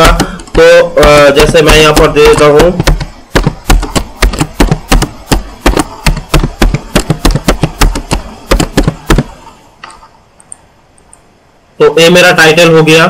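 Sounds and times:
computer keyboard typing: 0.0s - 9.4s.

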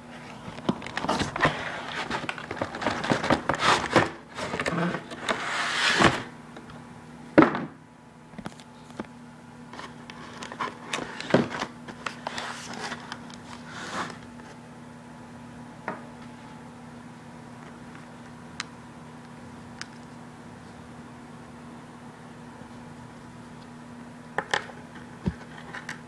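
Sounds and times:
faint steady hum: 0.0s - 26.0s
cardboard scraping and rustling: 0.2s - 6.3s, 9.8s - 14.2s.

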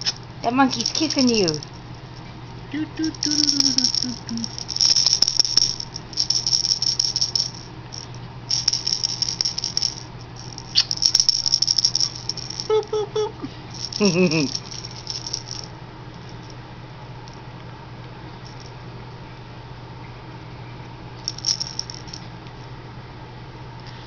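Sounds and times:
baby rattle shaking: 0.0s - 1.8s, 2.8s - 15.7s, 21.2s - 22.2s.

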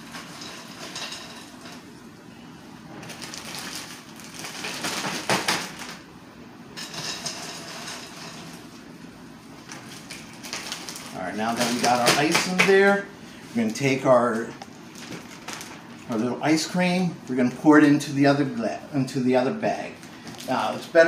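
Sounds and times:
ice cubes clattering into bag: 3.0s - 6.0s
plastic bag crinkling: 3.0s - 6.0s, 9.6s - 13.0s, 13.6s - 16.2s, 20.2s - 20.9s.

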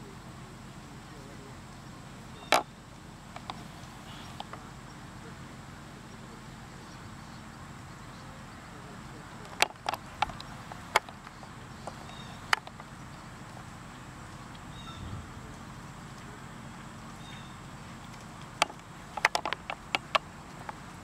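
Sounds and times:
outdoor background: 0.0s - 21.0s.

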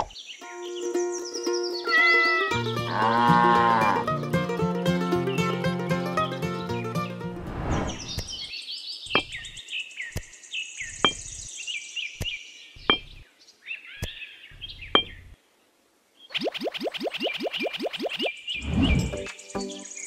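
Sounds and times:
birds chirping: 0.0s - 4.1s, 7.6s - 15.6s, 16.2s - 20.0s
music: 0.4s - 7.8s, 19.0s - 20.0s.

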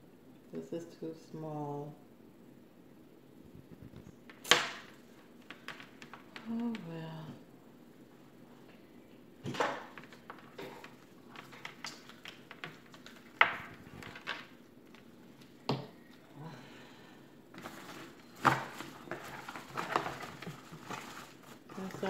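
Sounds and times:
rustling in cardboard box: 17.6s - 22.0s.

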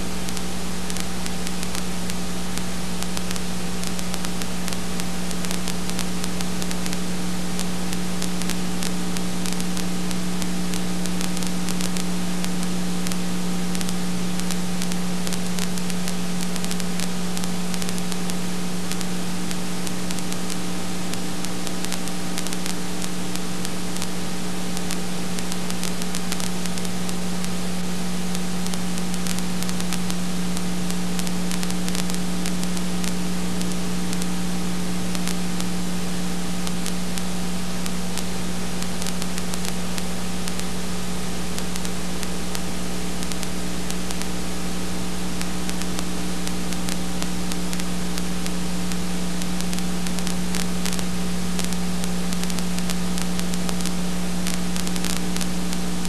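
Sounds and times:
electrical hum: 0.0s - 56.0s
faint crackles: 0.0s - 56.0s
steady hiss: 0.0s - 56.0s.

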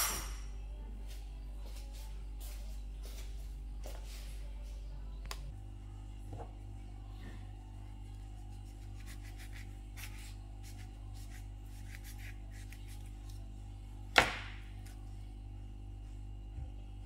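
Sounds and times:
steady low hum: 0.0s - 17.0s
knife scraping avocado skin: 8.4s - 13.4s.

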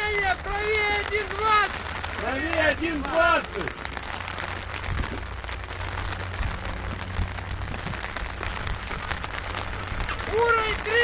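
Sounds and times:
faint crackles: 0.1s - 11.0s
low rumble: 3.5s - 10.8s.

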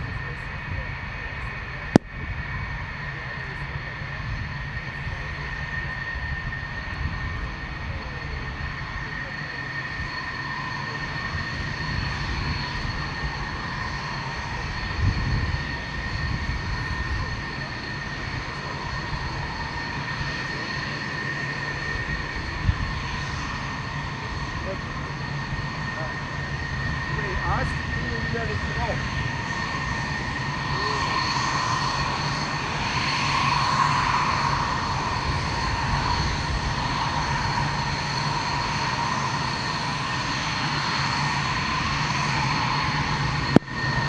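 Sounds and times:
jet engine whine: 0.0s - 44.0s.

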